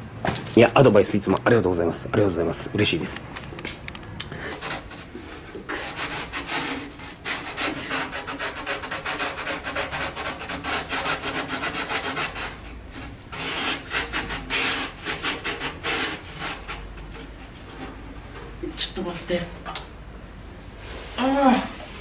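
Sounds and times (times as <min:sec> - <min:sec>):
brush scrubbing metal: 0:04.6 - 0:19.6.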